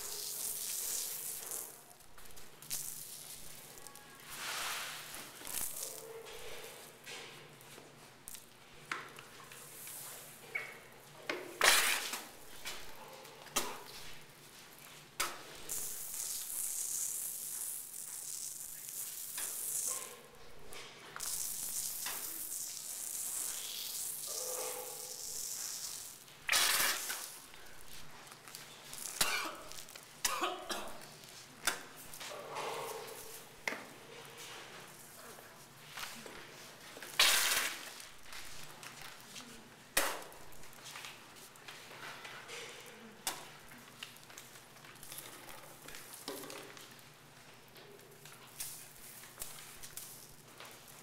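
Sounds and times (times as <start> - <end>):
spray can hissing: 15.7 - 19.9, 21.2 - 27.4, 37.2 - 37.9.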